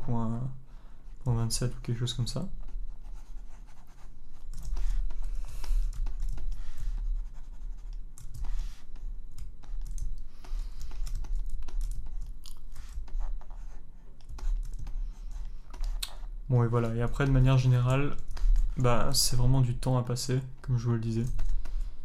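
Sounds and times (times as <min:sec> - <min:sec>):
low mains hum: 0:00.0 - 0:22.0
stylus scratching on tablet: 0:02.5 - 0:19.5
keyboard keys clicking: 0:09.3 - 0:13.0.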